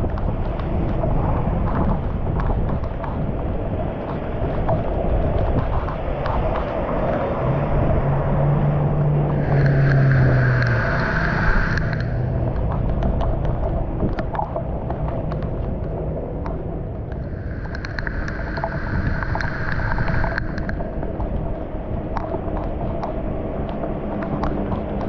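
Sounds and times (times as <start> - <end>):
water rushing into storm drain: 9.0 - 14.3, 17.1 - 21.2.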